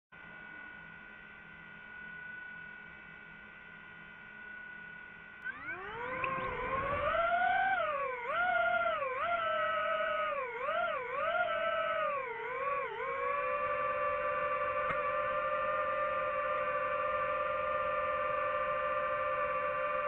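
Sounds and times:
drone propellers whining: 0:05.4 - 0:20.0.

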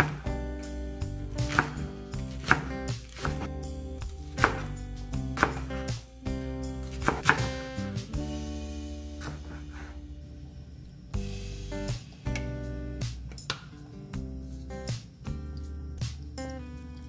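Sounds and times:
background music: 0:00.0 - 0:13.6
knife chopping on wooden board: 0:01.4 - 0:03.5, 0:04.3 - 0:04.7, 0:05.4 - 0:05.8, 0:06.9 - 0:07.5, 0:09.2 - 0:09.9.

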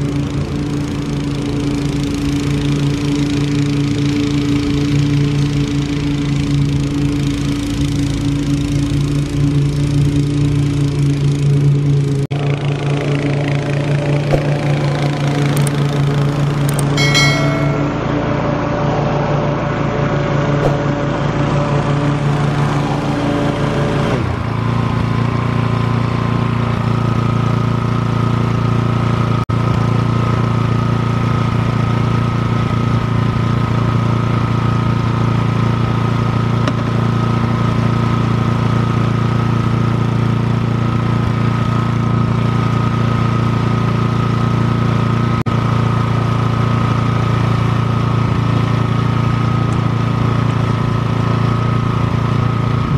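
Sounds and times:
lawn mower engine running: 0:00.0 - 0:52.9.

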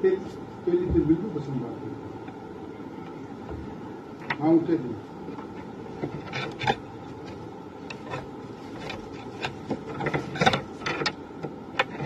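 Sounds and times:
steady background hiss: 0:00.0 - 0:12.0
cloth rustling and scraping: 0:05.4 - 0:11.1.

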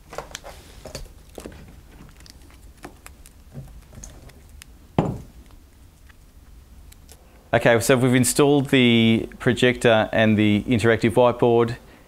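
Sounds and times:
loud knock: 0:05.0 - 0:05.3.

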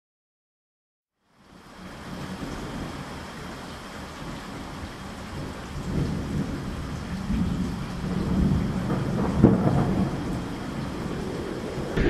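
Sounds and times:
rain-like hiss: 0:01.2 - 0:12.0
deep thunder-like rumble: 0:08.0 - 0:12.0.

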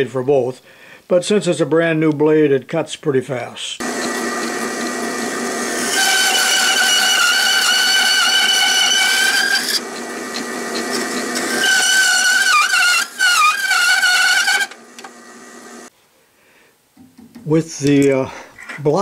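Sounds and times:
bandsaw cutting wood: 0:03.8 - 0:15.9.

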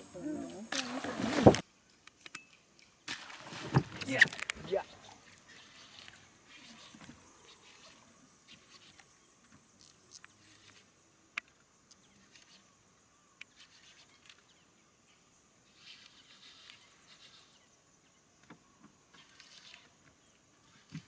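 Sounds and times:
high insect buzz: 0:03.6 - 0:14.6.

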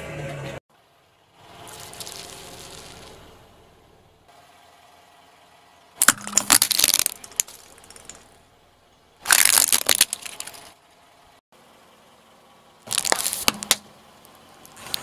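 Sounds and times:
glass baubles crunching under tyre: 0:01.6 - 0:03.3, 0:06.0 - 0:08.3, 0:09.2 - 0:10.7, 0:12.9 - 0:13.8.

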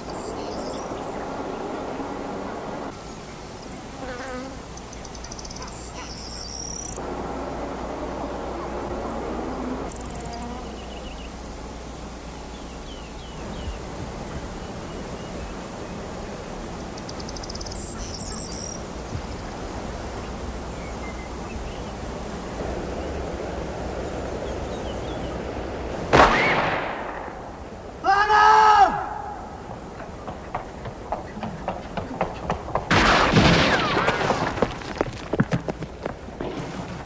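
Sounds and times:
birds chirping: 0:00.0 - 0:26.1
low steady hum: 0:00.0 - 0:28.1
rifle shot with echo: 0:26.1 - 0:27.5.

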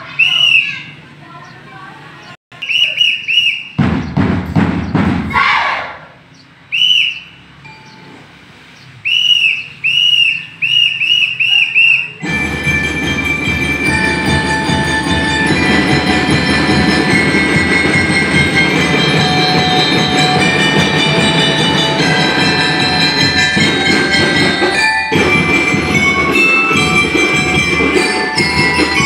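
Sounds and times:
whistle blasts: 0:00.1 - 0:00.9, 0:02.6 - 0:03.8, 0:06.7 - 0:07.5, 0:09.0 - 0:12.4
drums: 0:02.8 - 0:06.6, 0:12.1 - 0:29.0
bell lyres ringing: 0:07.5 - 0:08.6, 0:12.1 - 0:29.0.

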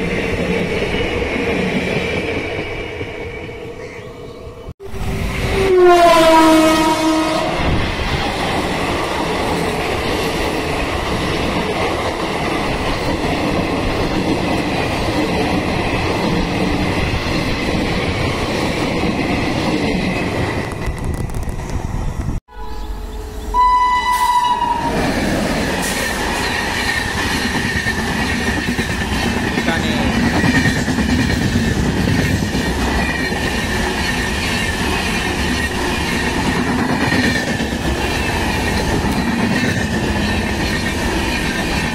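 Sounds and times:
train coaches running past: 0:00.0 - 0:41.9
train horn: 0:04.8 - 0:07.7, 0:22.5 - 0:25.0.

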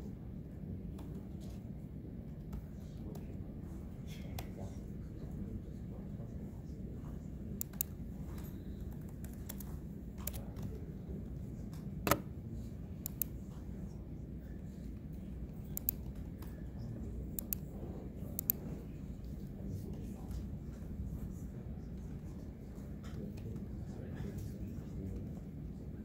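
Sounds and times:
low room hum: 0:00.0 - 0:26.0
keyboard key clicks: 0:12.0 - 0:12.3.

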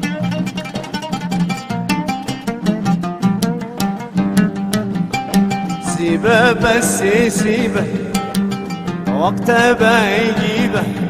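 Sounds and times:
oud plucked melody: 0:00.0 - 0:11.0
person singing: 0:05.7 - 0:11.0.

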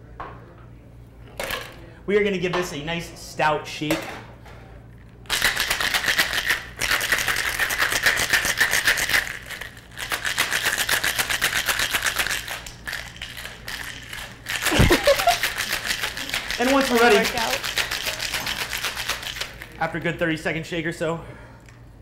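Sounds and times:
ice rattling in cocktail shaker: 0:05.3 - 0:19.8.

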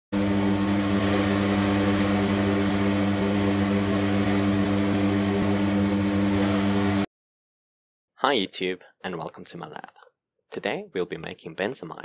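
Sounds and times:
low machine hum: 0:00.1 - 0:07.1
rushing noise: 0:00.2 - 0:07.1.

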